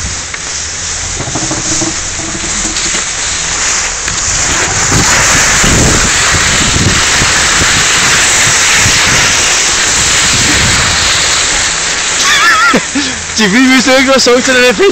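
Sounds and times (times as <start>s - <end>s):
skis hissing over snow: 0.0s - 14.9s
wind buffeting microphone: 1.0s - 11.7s.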